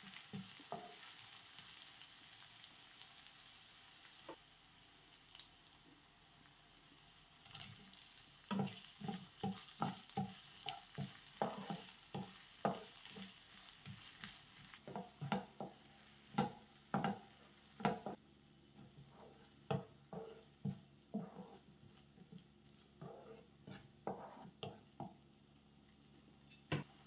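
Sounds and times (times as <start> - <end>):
light sizzling: 0.0 - 27.0
spatula scraping frying pan: 7.6 - 18.2, 18.8 - 25.1.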